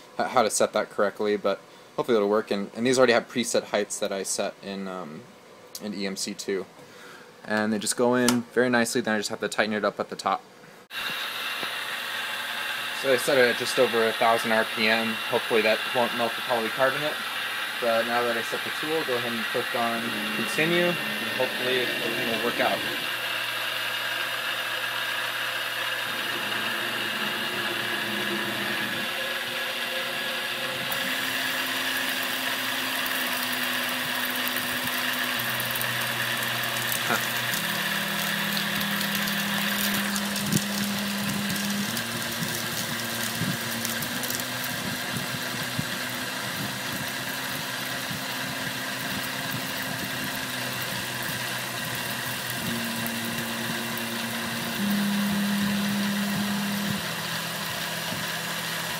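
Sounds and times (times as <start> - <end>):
high spindle whine: 10.9 - 58.9
milling machine cutting plastic: 11.0 - 58.9
low motor hum shifting pitch: 16.1 - 33.2, 34.5 - 58.9.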